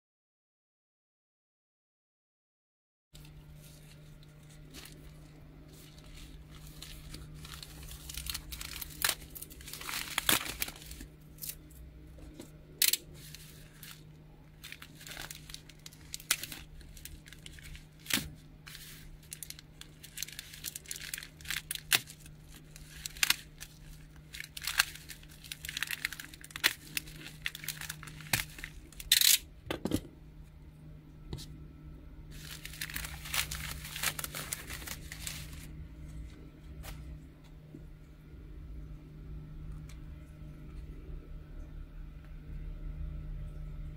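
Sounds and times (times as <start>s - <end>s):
plastic mailer crinkling and tearing: 3.2s - 29.4s, 32.3s - 35.8s.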